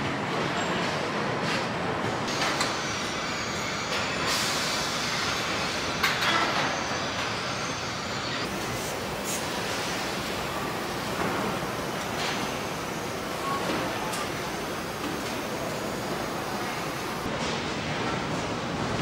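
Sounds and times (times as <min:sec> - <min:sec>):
sharp hisses: 0:08.5 - 0:17.3.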